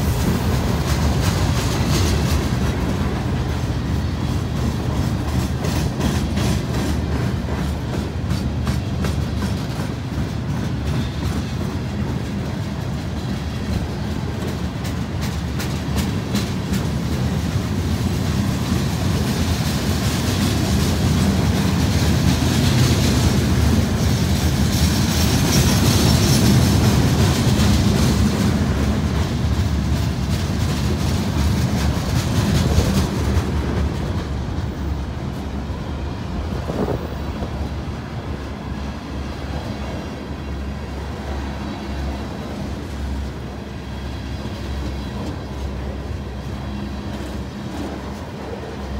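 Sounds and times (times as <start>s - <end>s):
freight train rumbling past: 0.0s - 48.9s
wheels clicking over rail joints: 0.0s - 48.9s.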